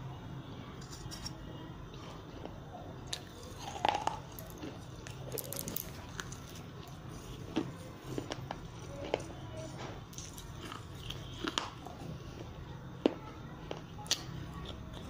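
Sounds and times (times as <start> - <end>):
crunching clay in the mouth: 3.0 - 15.0.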